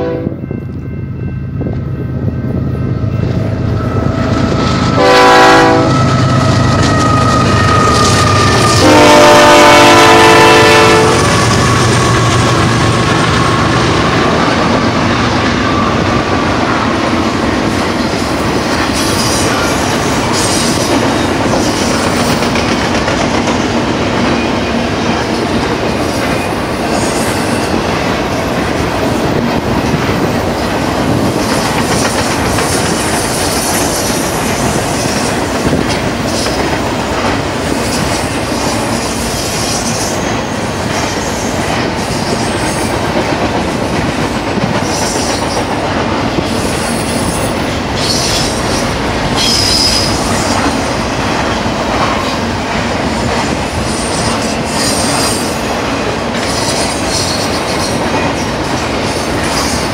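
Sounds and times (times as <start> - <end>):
train horn blasts: 0.0 - 1.7, 3.8 - 12.6
diesel locomotive engine rumble: 0.0 - 59.9
train cars rolling clickety-clack: 0.0 - 59.9.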